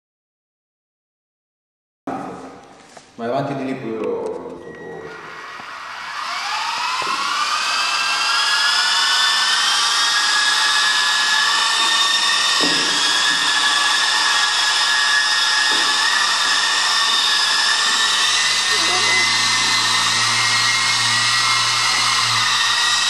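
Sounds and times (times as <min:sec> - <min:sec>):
rc helicopter motor whine: 0:05.1 - 0:23.0.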